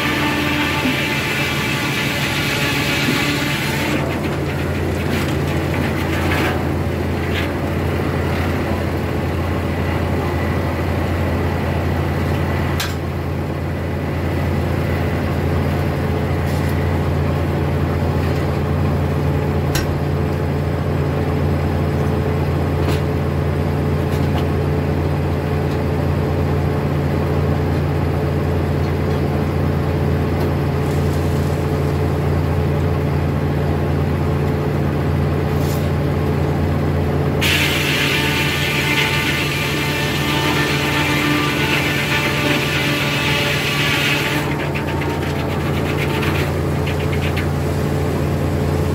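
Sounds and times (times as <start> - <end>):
sawmill blade droning: 0.0 - 12.4, 37.3 - 48.9.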